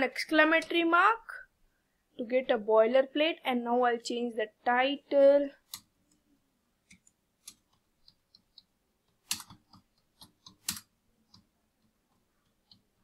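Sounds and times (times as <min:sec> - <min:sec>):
computer keyboard typing: 0:06.9 - 0:13.0.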